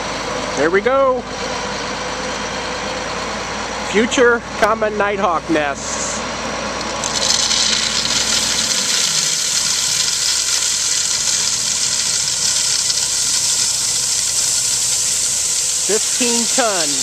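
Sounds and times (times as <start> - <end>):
gravel pouring out: 6.8 - 17.0.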